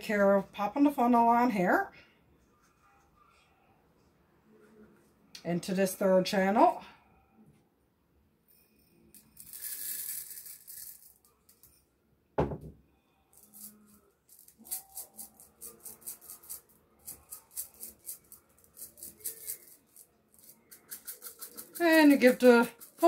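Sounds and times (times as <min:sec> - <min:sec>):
rice pouring through funnel: 0:09.4 - 0:11.1
rice rattling in pouch: 0:13.4 - 0:23.0.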